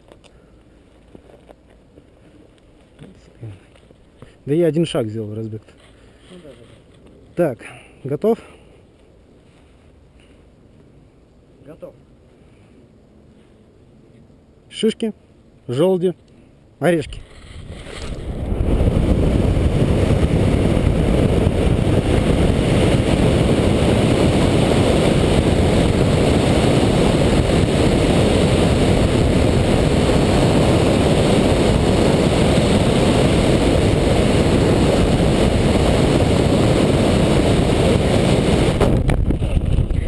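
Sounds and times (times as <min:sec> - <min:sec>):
wind rushing over microphone: 0:16.9 - 0:40.0.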